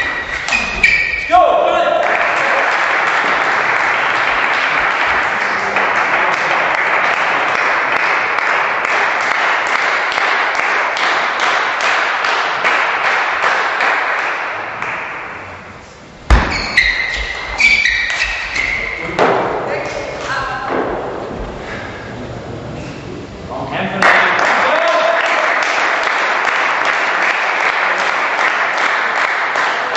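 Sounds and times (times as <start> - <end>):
spectators applauding: 1.7 - 15.1, 24.0 - 29.9.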